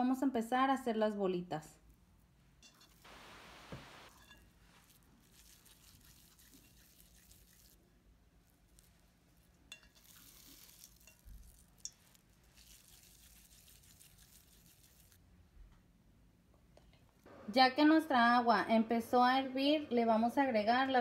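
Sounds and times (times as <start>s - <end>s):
wet squishing of meat by hand: 4.6s - 15.3s.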